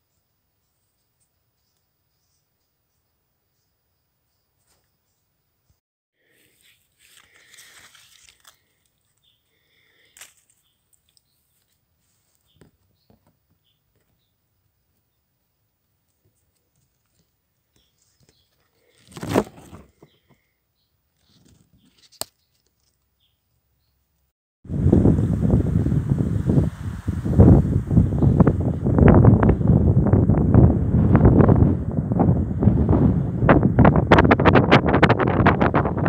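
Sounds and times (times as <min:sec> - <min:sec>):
leaves and stems rustling: 0:06.3 - 0:12.8, 0:16.0 - 0:20.2, 0:21.2 - 0:23.1.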